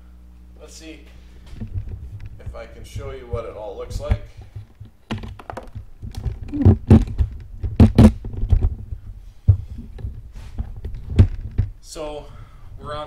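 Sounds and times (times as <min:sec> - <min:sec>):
camera handling thumps and rubbing: 0:01.5 - 0:11.8.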